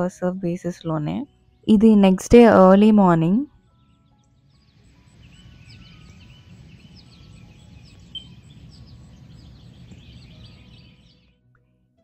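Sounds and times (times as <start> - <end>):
songbirds chirping and singing: 0.0 - 11.4.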